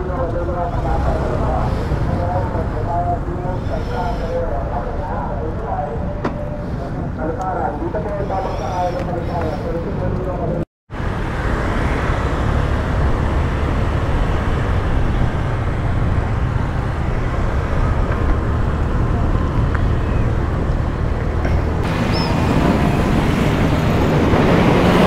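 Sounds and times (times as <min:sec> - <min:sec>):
traffic: 0:00.0 - 0:25.0
wind on microphone: 0:11.0 - 0:25.0.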